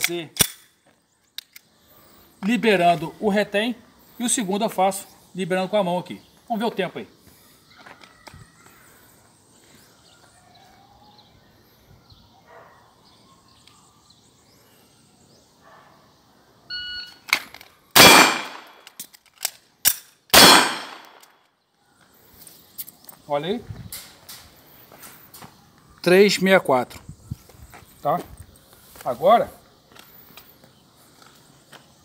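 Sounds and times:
gun action metallic clicks: 0.0 - 0.7, 1.3 - 1.7, 17.3 - 21.4
pistol shots: 18.0 - 18.8, 19.9 - 21.3.

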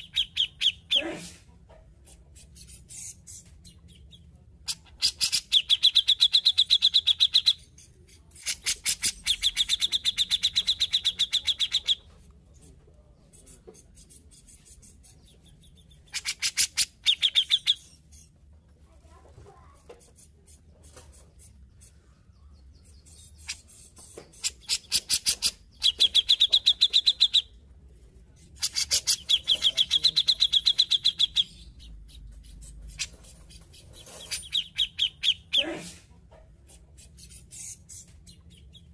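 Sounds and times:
bulbul chattering calls: 4.7 - 7.7, 8.3 - 12.0, 13.4 - 18.3, 24.4 - 27.6, 28.6 - 35.7.

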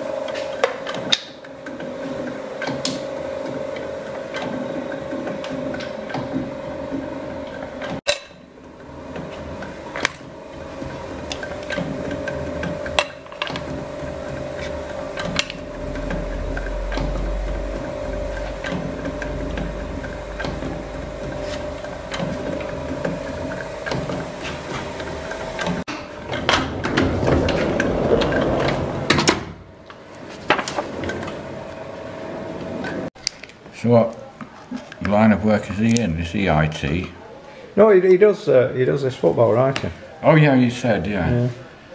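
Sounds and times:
machine hum: 0.0 - 33.1.

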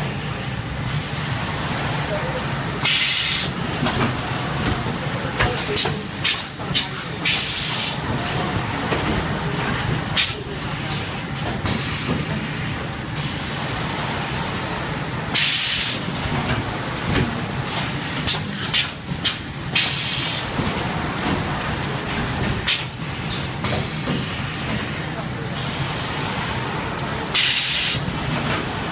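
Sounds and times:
pneumatic air hiss: 2.8 - 4.2, 5.8 - 8.1, 15.4 - 16.1, 18.1 - 20.5, 27.3 - 28.6.

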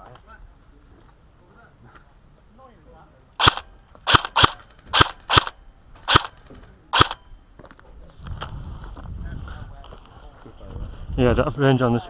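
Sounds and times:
airsoft gun shots: 3.4 - 6.4, 7.0 - 7.2.

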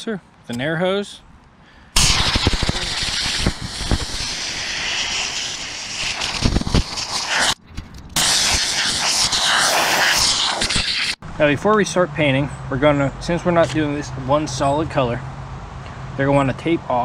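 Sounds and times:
compressed air hissing: 2.0 - 7.6, 8.2 - 11.2.

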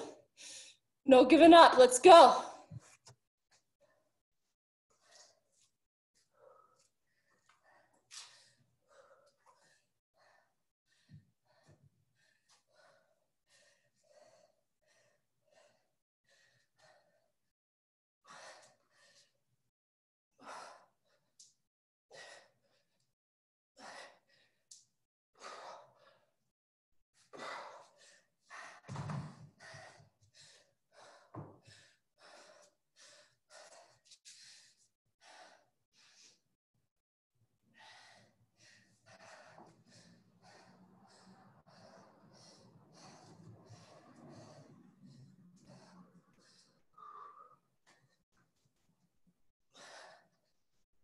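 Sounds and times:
person breathing hard: 6.2 - 17.4, 27.3 - 36.5, 37.7 - 48.2, 49.7 - 50.6.

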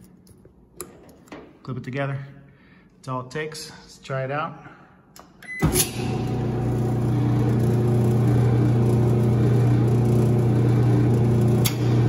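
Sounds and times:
dryer motor and drum humming: 5.7 - 12.0.

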